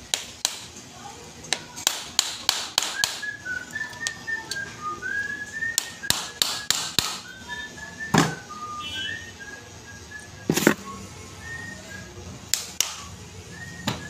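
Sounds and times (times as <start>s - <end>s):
person whistling: 2.9s - 12.2s, 12.9s - 14.0s
hand tools tapping metal: 5.7s - 7.3s.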